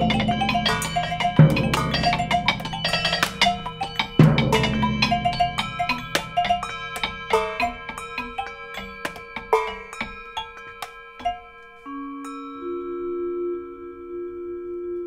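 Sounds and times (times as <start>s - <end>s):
deep drum strikes: 0.0s - 6.6s
mallets striking vibraphone and metal: 0.0s - 13.2s.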